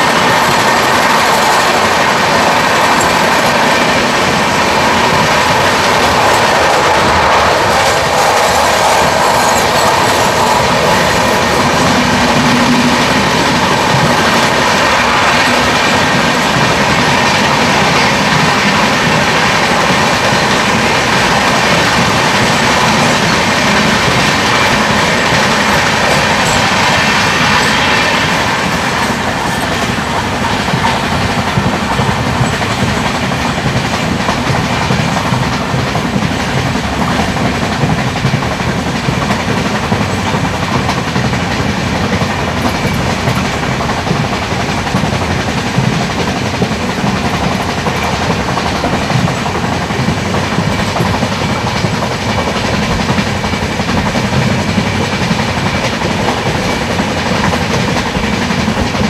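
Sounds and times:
wind rushing: 0.0 - 34.8
train wheels rushing on rails: 0.0 - 59.0.

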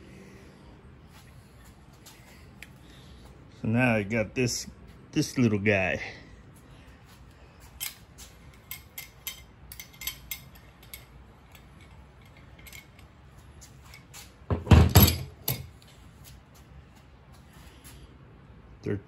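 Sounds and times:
metal hand tools clinking: 7.8 - 13.1.

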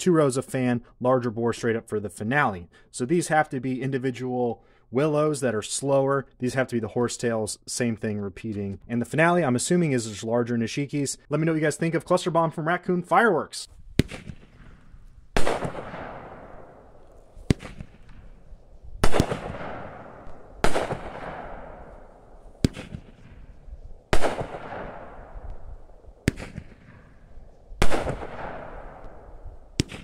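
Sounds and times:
firework shots bursting: 13.9 - 30.0.

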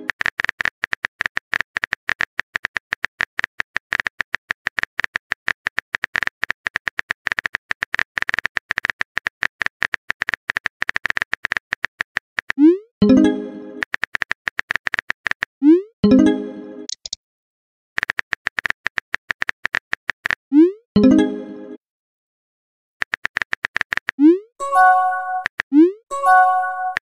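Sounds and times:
phone keyboard typing clicks: 16.9 - 17.2.

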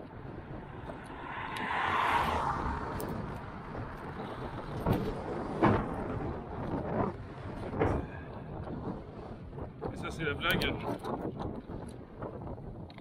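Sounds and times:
rolling rumble: 0.0 - 13.0
wind: 0.0 - 13.0
car passing by: 0.4 - 5.8.

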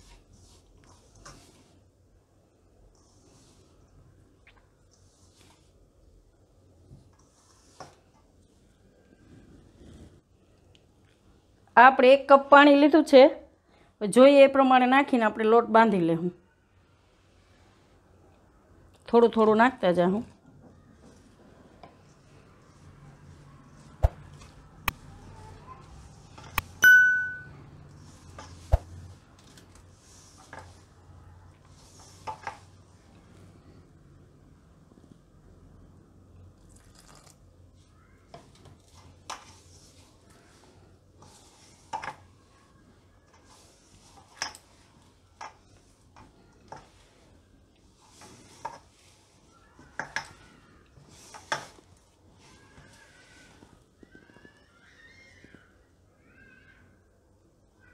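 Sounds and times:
hands mixing dough in bowl: 0.0 - 11.6, 17.0 - 35.5, 36.2 - 56.0
bright bell ding: 26.8 - 27.6.

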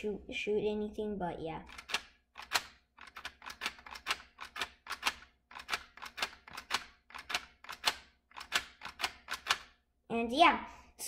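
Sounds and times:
sharp plastic clicks: 1.7 - 9.8.

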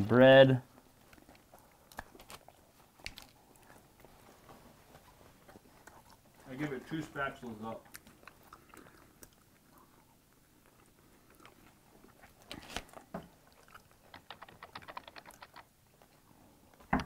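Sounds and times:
person chewing food: 0.7 - 7.0, 7.6 - 16.9
quick small clicks: 14.1 - 15.7.

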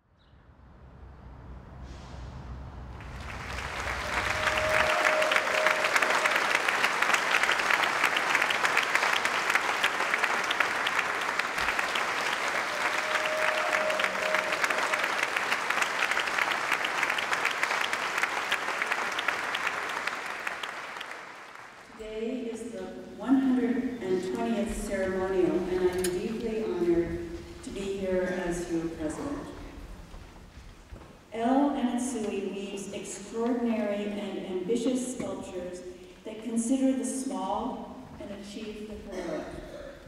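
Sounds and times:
large audience applauding: 2.9 - 22.0.

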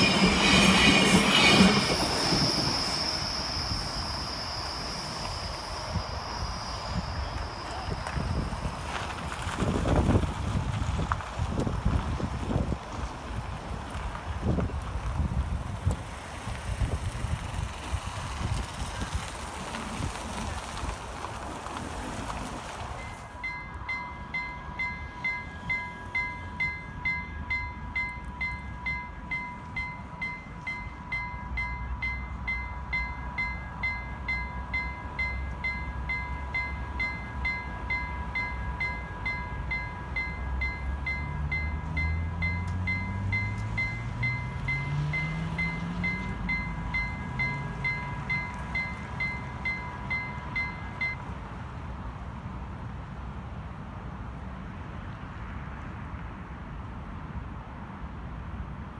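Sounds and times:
level crossing bells ringing: 23.0 - 51.3.

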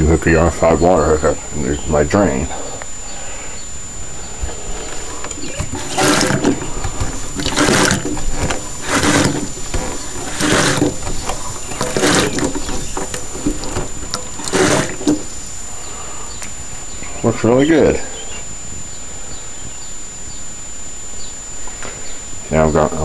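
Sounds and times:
hand pump faucet strokes: 5.2 - 15.3.

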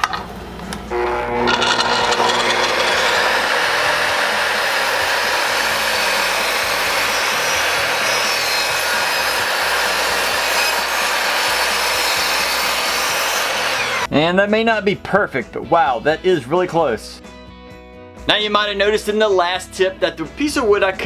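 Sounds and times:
miter saw cutting plywood: 0.9 - 14.1.

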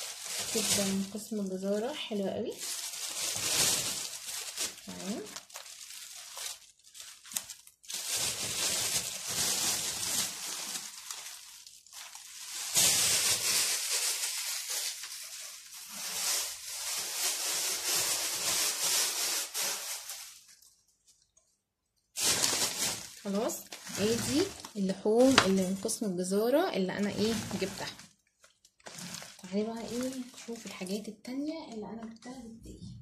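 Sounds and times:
plastic bags rustling: 0.0 - 21.2, 22.2 - 32.3.

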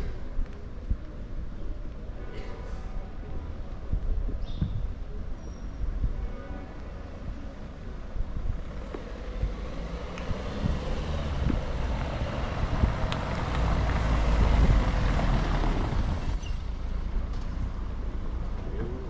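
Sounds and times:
vehicle passing: 9.2 - 16.3.

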